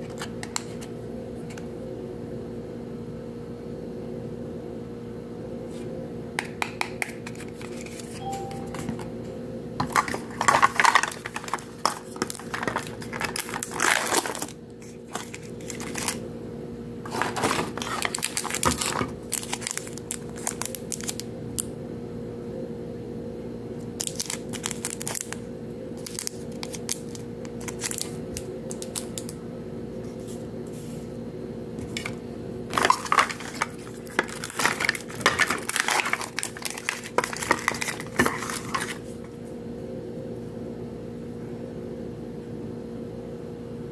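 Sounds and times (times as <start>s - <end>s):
plastic and paper crinkling: 7.2s - 9.0s, 9.8s - 16.2s, 17.0s - 21.2s, 24.0s - 25.4s, 26.0s - 29.4s, 31.8s - 39.2s.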